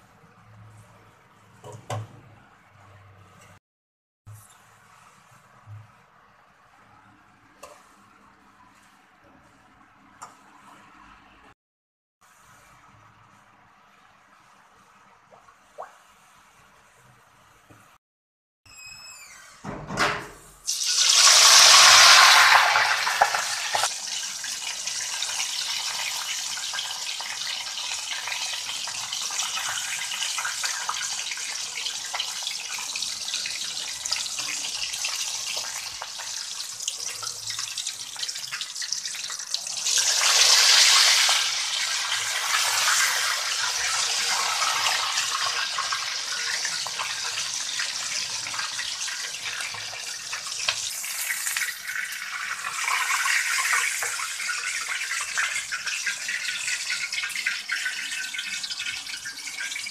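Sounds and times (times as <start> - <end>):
chicken sizzling in hot oil: 20.7 - 59.9.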